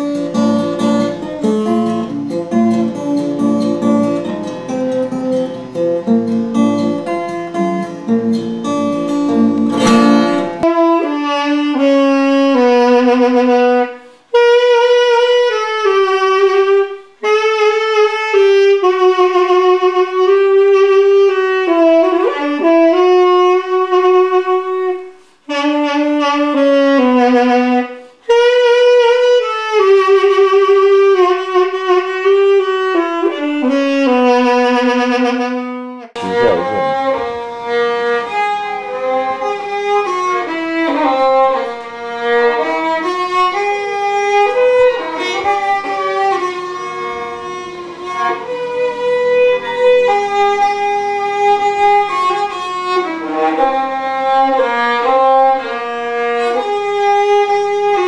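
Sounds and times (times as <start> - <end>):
saxophone melody: 0.0 - 58.0
violin melody: 0.0 - 58.0.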